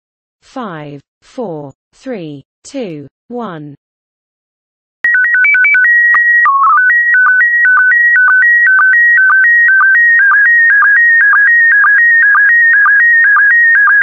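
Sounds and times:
stepped beeps: 0:05.1 - 0:14.0.

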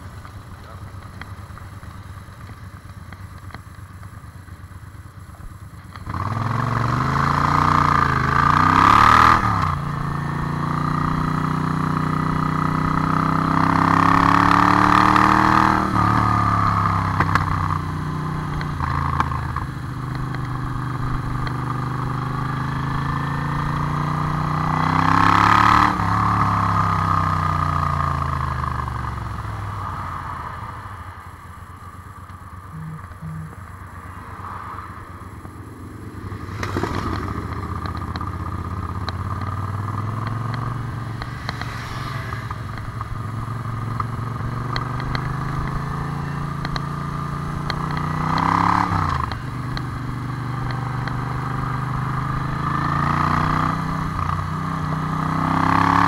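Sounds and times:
motorcycle accelerating with upshifts: 0:00.0 - 0:56.0.

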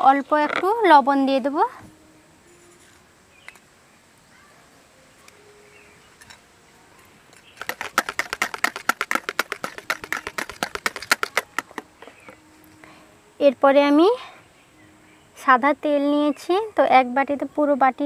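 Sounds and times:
wire whisk beating in plastic bowl: 0:07.6 - 0:11.9.

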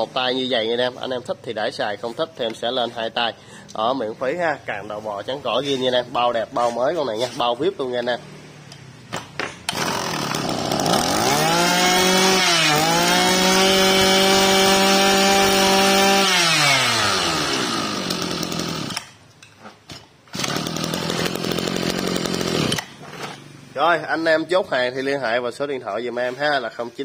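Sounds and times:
two-stroke engine revving: 0:09.7 - 0:19.1, 0:20.3 - 0:22.9.

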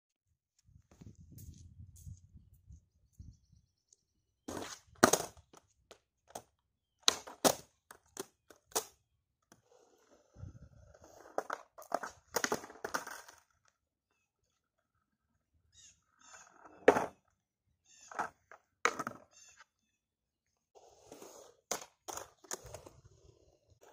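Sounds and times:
skateboard wheels rolling on concrete: 0:04.4 - 0:19.8, 0:20.6 - 0:23.9
skateboard deck cracks and slaps: 0:04.5 - 0:05.6, 0:07.0 - 0:09.0, 0:11.4 - 0:13.4.

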